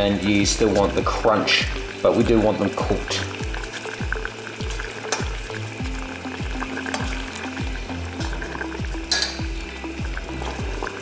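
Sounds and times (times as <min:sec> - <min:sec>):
background music with steady beat: 0:00.0 - 0:11.0
water boiling hard: 0:00.0 - 0:11.0.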